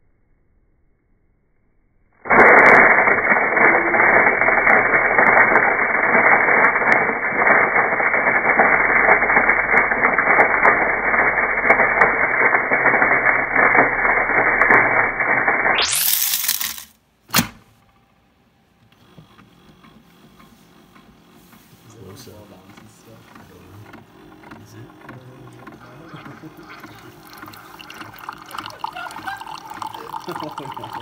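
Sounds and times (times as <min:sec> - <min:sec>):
coffee grinder grinding beans: 0:02.3 - 0:17.0, 0:23.5 - 0:31.0.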